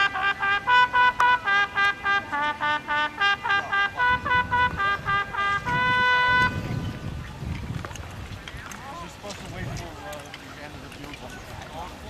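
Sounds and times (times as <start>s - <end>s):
bugle call: 0.0s - 6.9s.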